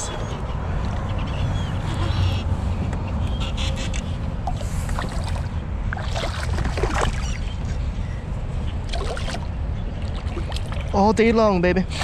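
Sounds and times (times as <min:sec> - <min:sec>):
wind rumbling on microphone: 0:00.0 - 0:12.0
water splashes and drips: 0:04.4 - 0:07.7, 0:08.8 - 0:11.2.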